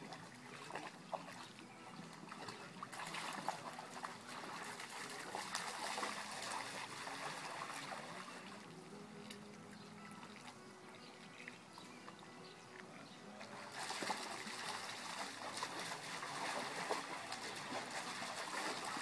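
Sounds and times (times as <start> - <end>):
dogs splashing through water: 0.0 - 8.6, 13.1 - 19.0.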